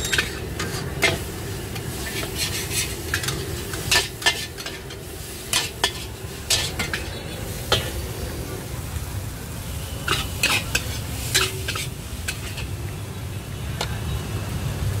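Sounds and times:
metal spatula scraping wok: 0:00.0 - 0:08.3, 0:10.0 - 0:12.9
steady sizzle: 0:00.0 - 0:15.0.

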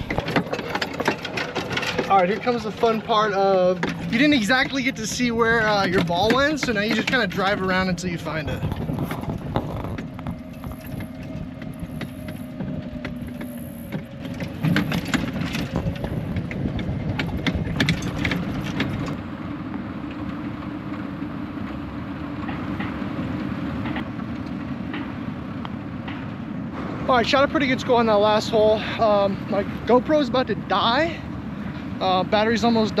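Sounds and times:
rattles and knocks: 0:00.0 - 0:19.2
golf cart driving: 0:00.0 - 0:33.0.

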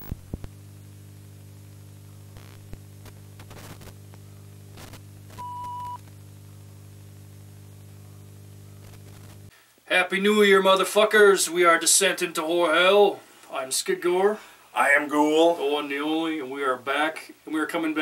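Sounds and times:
electrical hum: 0:00.0 - 0:09.6
tape hiss: 0:00.0 - 0:18.0
clicks and crackles: 0:02.4 - 0:06.2, 0:08.8 - 0:09.5
short high beep: 0:05.4 - 0:06.0.

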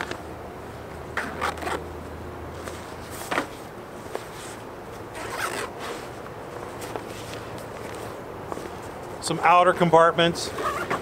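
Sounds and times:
nylon bag rustling: 0:04.4 - 0:06.1
bag scraping: 0:05.1 - 0:06.1.

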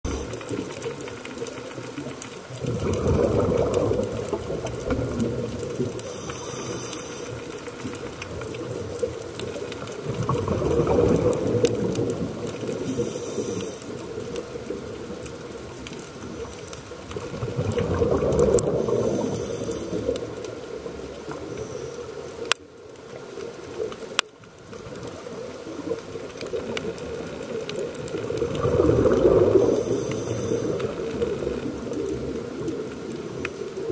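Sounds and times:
exhaled air bubbling: 0:00.0 - 0:33.9
regulator inhalation hiss: 0:00.1 - 0:00.4, 0:06.0 - 0:07.4, 0:12.8 - 0:14.0, 0:18.8 - 0:20.2, 0:29.6 - 0:30.9.

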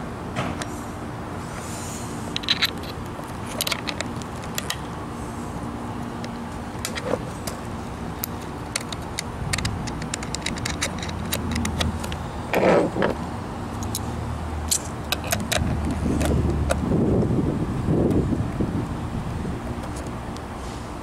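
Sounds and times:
small metal parts clinking: 0:02.4 - 0:04.8, 0:08.2 - 0:13.2.

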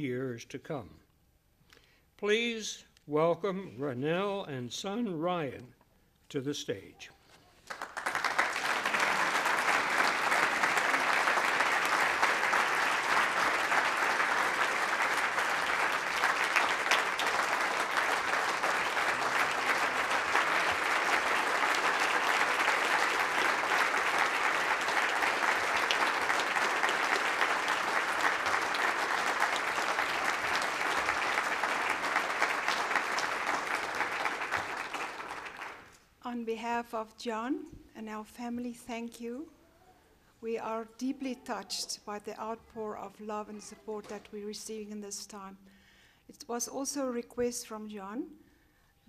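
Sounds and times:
audience applauding: 0:07.6 - 0:36.0.

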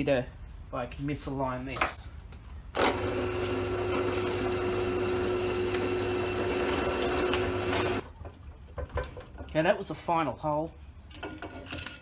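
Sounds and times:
drill press drilling wood: 0:02.8 - 0:08.0.

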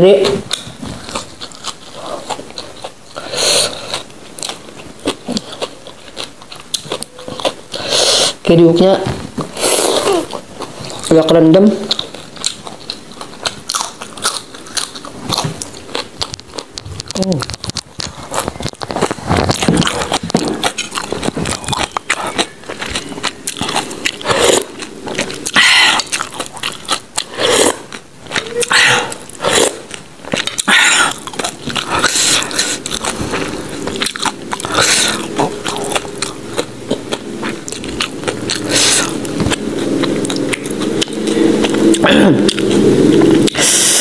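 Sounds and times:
person chewing crunchy food: 0:00.0 - 0:08.5, 0:09.2 - 0:44.0
wet mouth sounds: 0:09.4 - 0:44.0.

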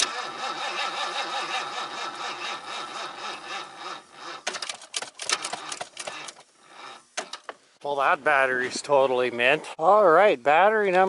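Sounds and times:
rapid starter clicking: 0:00.0 - 0:06.5
engine cranking: 0:00.0 - 0:07.5.

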